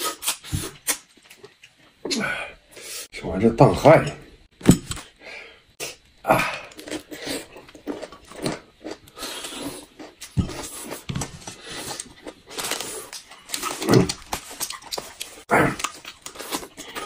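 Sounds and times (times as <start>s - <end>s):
sucking and chewing: 5.9s - 17.0s.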